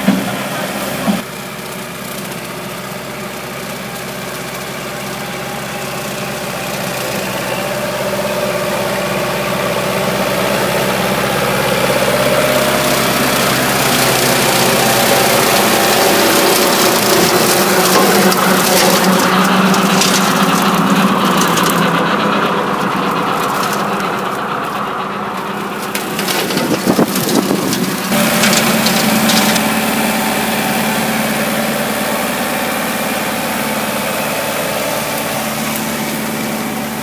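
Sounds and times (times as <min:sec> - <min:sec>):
diesel tractor engine running: 0:00.0 - 0:37.0
rotary mower cutting grass: 0:00.0 - 0:37.0.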